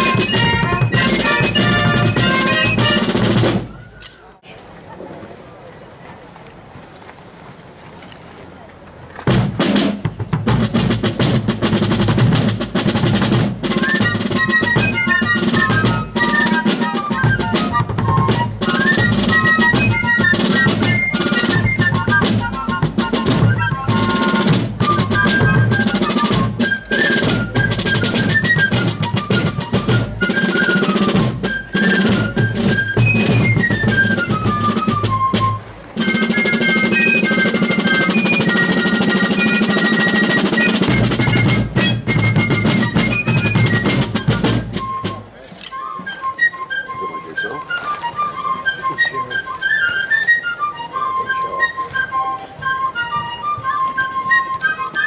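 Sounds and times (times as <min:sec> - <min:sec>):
fifes playing high melody: 0:00.0 - 0:03.6
snare drums: 0:00.0 - 0:04.2, 0:09.2 - 0:49.7.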